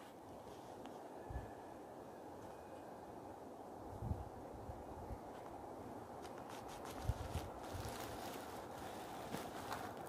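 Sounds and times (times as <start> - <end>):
faint outdoor background noise: 0.0 - 10.0.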